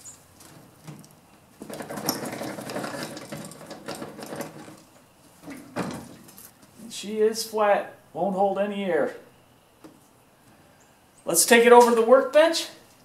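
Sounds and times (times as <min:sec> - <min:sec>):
metal wheel hub rattling on axle: 0:01.6 - 0:05.0.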